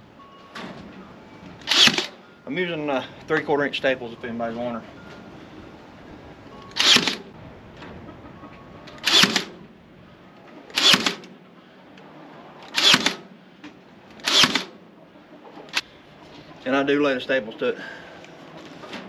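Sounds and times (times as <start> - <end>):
staple gun firing into wood: 1.6 - 2.1, 6.8 - 7.2, 9.0 - 9.5, 10.7 - 11.3, 12.7 - 13.2, 14.2 - 14.7.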